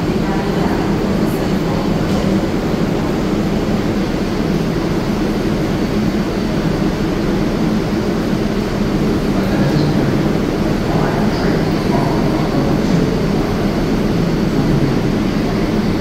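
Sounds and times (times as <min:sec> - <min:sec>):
subway train equipment hum: 0:00.0 - 0:16.0.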